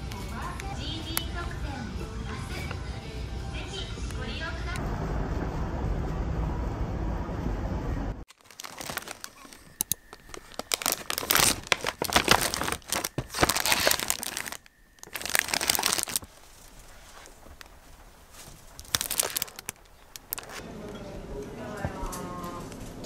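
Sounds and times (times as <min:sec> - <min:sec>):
low background noise: 0:00.0 - 0:23.0
plastic bags crinkling: 0:08.3 - 0:20.6.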